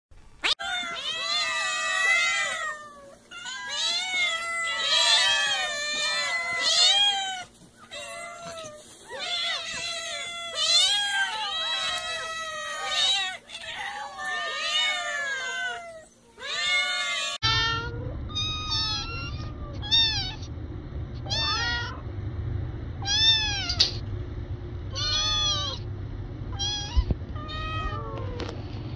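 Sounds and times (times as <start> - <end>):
cat high-pitched meows: 0.4 - 20.4, 21.3 - 22.0, 23.0 - 23.8, 24.9 - 25.8, 26.6 - 28.5
cats meowing: 0.4 - 20.5, 21.2 - 22.0, 23.0 - 24.0, 24.9 - 25.8, 26.5 - 28.5
steady low rumble: 17.4 - 28.9.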